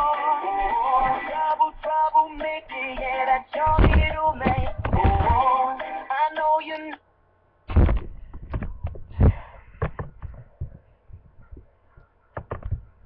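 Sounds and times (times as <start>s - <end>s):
irregular knocks and thumps: 3.0s - 5.4s, 7.7s - 13.0s.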